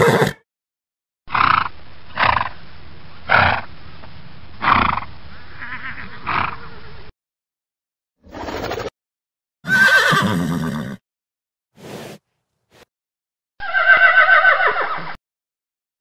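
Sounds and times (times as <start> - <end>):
horse neighing: 0.0 - 0.4, 5.6 - 6.8, 9.6 - 11.0, 13.6 - 15.1.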